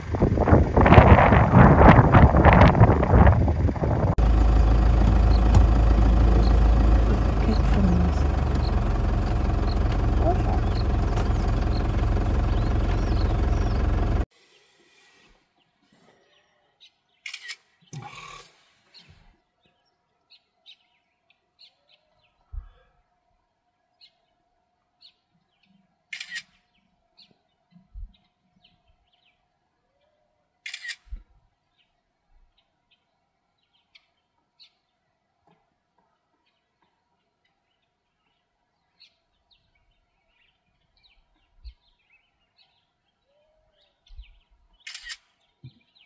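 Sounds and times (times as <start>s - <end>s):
faint small birds chirping: 4.1s - 46.0s
camera shutter firing: 17.3s - 18.4s, 26.2s - 26.5s, 30.7s - 31.1s, 44.8s - 45.3s.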